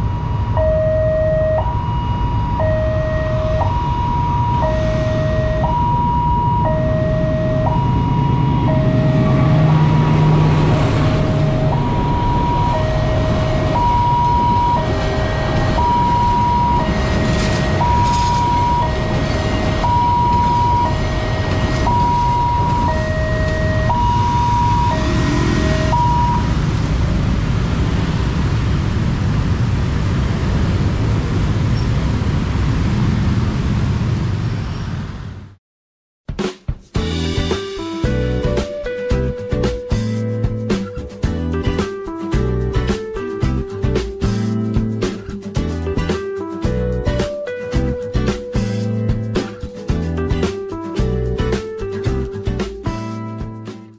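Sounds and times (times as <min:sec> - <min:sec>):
level crossing two-tone alarm: 0:00.0 - 0:26.5
passing train rumble: 0:00.0 - 0:35.6, 0:37.0 - 0:53.1
road traffic: 0:00.0 - 0:35.6, 0:37.0 - 0:53.5.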